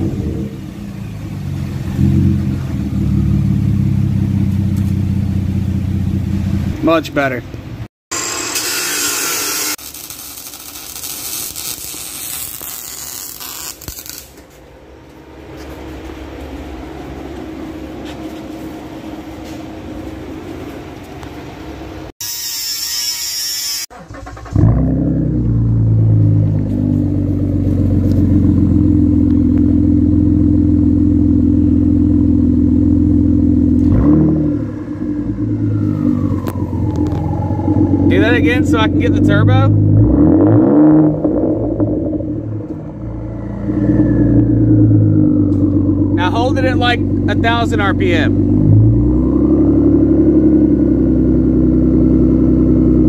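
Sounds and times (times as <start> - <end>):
car engine running loud and deep: 0.0 - 7.9, 24.4 - 53.0
grinder cutting metal: 8.1 - 14.3, 22.2 - 23.9.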